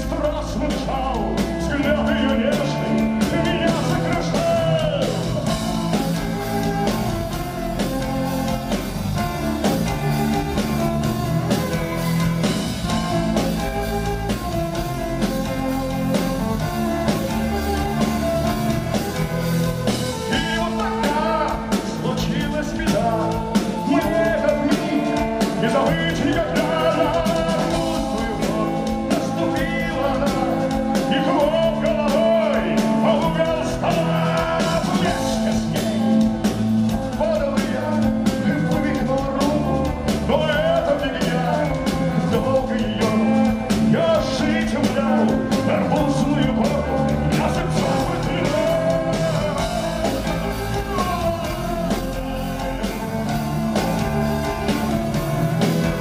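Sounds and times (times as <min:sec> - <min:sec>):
bass guitar: 0:00.0 - 0:56.0
drums: 0:00.0 - 0:56.0
electric guitar: 0:00.0 - 0:56.0
person singing into a microphone: 0:00.0 - 0:56.0
violin: 0:00.0 - 0:56.0.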